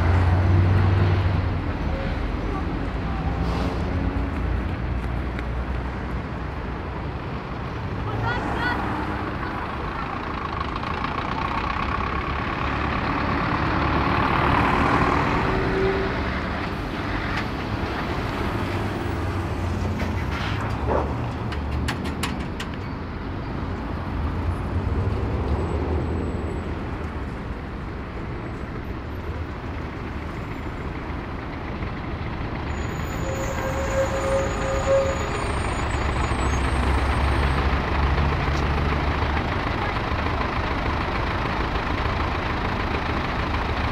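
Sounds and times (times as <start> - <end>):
lorry diesel engine: 0.0 - 43.9
road traffic passing: 0.0 - 43.9
short squeal: 32.7 - 37.1.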